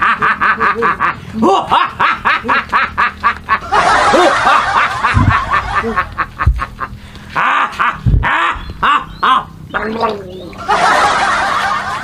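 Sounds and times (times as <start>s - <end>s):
person laughing in snickers: 0.0s - 9.5s.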